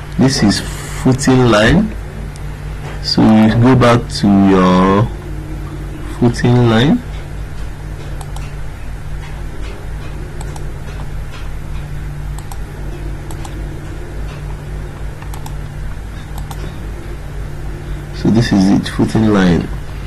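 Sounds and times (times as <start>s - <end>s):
steady low hum: 0.0s - 20.0s
computer mouse clicking: 8.1s - 8.6s, 10.0s - 11.1s, 12.3s - 13.6s, 15.2s - 15.6s, 16.3s - 16.8s.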